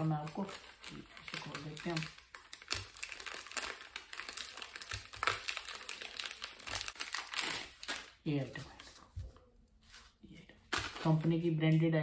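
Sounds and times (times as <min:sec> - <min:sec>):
plastic wrapper crinkling: 0:00.0 - 0:09.0.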